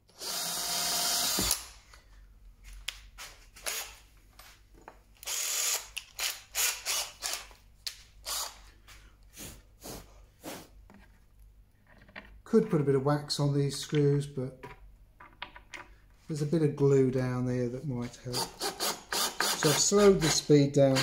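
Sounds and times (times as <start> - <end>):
cordless drill drilling plywood: 0.2 - 1.7, 5.2 - 7.5, 8.2 - 8.6, 18.4 - 19.8
drill chuck ratcheting: 5.2 - 7.5.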